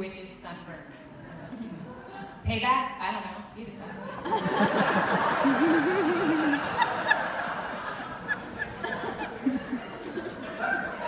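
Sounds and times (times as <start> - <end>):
audience laughing: 4.0 - 11.0
person's wavering laugh: 5.4 - 7.2, 8.3 - 11.0.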